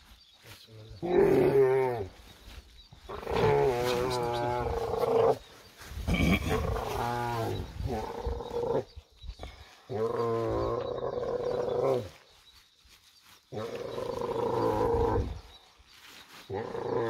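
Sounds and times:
camel groaning: 0:01.0 - 0:02.2, 0:03.1 - 0:05.4, 0:06.0 - 0:08.9.

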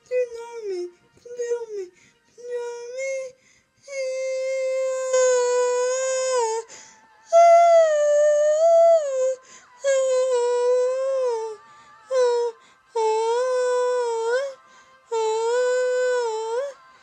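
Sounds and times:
girl singing wordless notes: 0:00.0 - 0:17.0.

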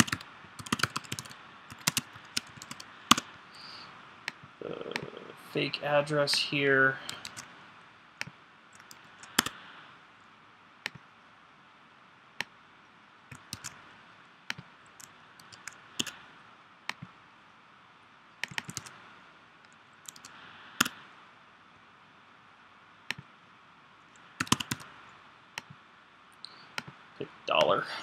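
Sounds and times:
computer mouse clicks: 0:00.0 - 0:03.3, 0:07.1 - 0:07.5, 0:08.2 - 0:09.6, 0:13.3 - 0:13.8, 0:14.5 - 0:16.2, 0:16.9 - 0:17.1, 0:18.4 - 0:19.0, 0:19.6 - 0:21.0, 0:24.2 - 0:24.9
keyboard key presses: 0:00.0 - 0:03.3, 0:08.8 - 0:09.6, 0:13.3 - 0:13.8, 0:15.4 - 0:16.2, 0:18.4 - 0:18.9, 0:24.4 - 0:24.9.

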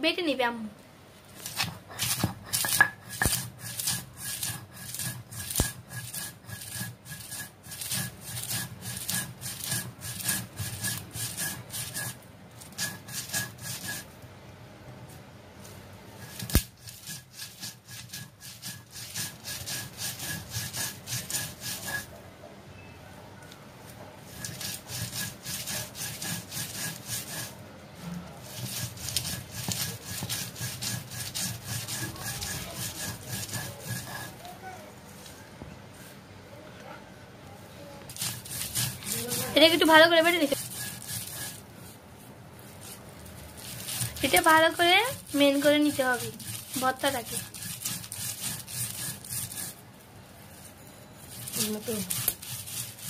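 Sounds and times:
stone grinding on stone: 0:01.4 - 0:14.2, 0:16.2 - 0:22.2, 0:24.3 - 0:27.6, 0:28.4 - 0:34.6, 0:38.1 - 0:41.6, 0:42.7 - 0:49.8, 0:50.6 - 0:53.0.

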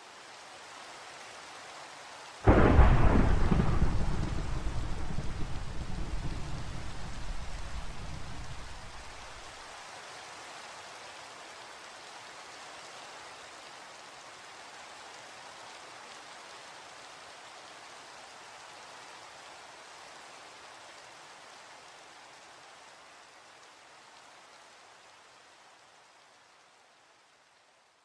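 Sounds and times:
steady rain: 0:00.0 - 0:28.0
low thunder rumble: 0:02.5 - 0:09.4.

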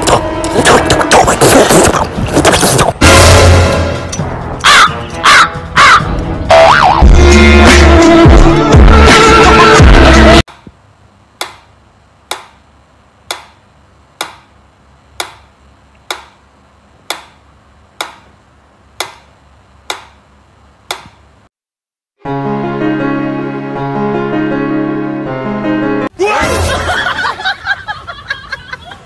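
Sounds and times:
background music: 0:03.0 - 0:10.4, 0:22.2 - 0:27.6.

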